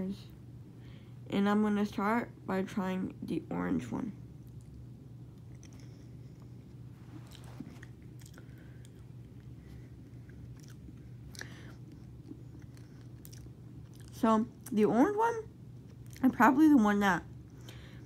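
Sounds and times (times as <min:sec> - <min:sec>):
person crunching a hard mint: 0:10.5 - 0:14.2.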